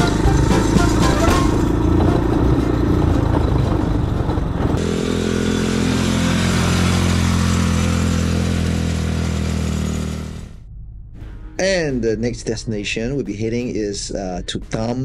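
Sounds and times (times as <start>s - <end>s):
atv engine running: 0.0s - 10.6s.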